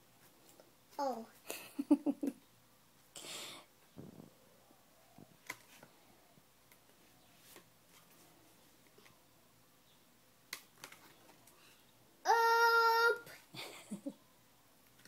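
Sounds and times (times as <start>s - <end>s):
picture book pages turning: 10.5s - 11.5s.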